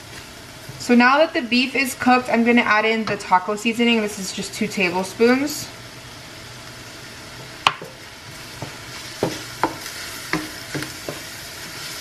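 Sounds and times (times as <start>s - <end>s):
meat sizzling in a frying pan: 0.0s - 12.0s
wooden spoon knocking and scraping pan: 7.6s - 11.8s.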